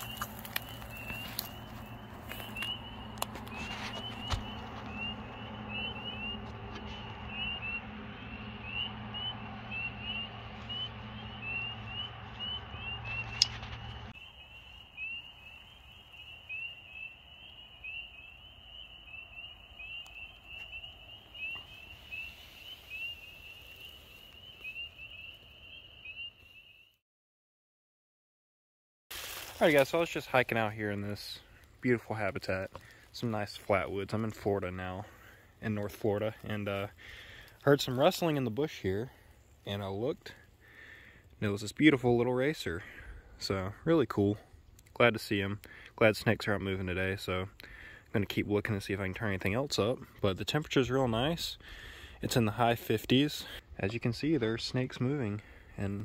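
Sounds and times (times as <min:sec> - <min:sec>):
low rumbling handling noise: 0:00.0 - 0:14.2
frogs chirping: 0:00.0 - 0:26.8.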